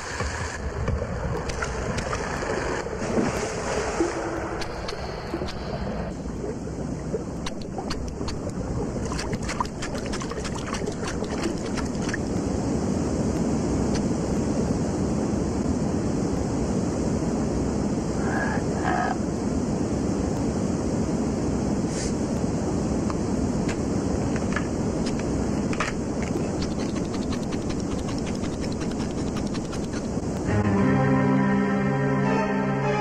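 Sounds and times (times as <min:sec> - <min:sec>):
cartoon rushing river water: 0:00.0 - 0:15.4, 0:23.4 - 0:30.6
scattered clicks: 0:07.4 - 0:12.3, 0:23.7 - 0:30.4.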